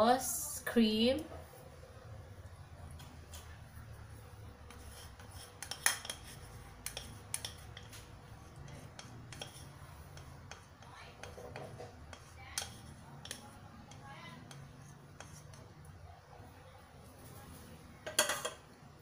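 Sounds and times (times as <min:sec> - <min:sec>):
spatula scraping and tapping container: 0:04.6 - 0:15.8.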